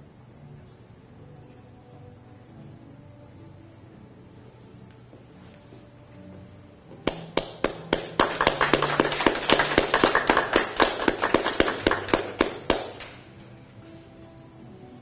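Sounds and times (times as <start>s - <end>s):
audience clapping: 7.0s - 13.2s.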